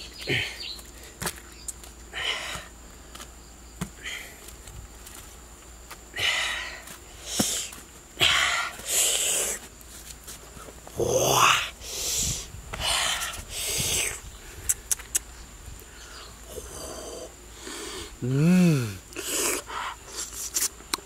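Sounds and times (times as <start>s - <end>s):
light mouth clicks: 14.6s - 15.3s, 20.2s - 21.0s
man slurping and sucking: 19.1s - 20.7s.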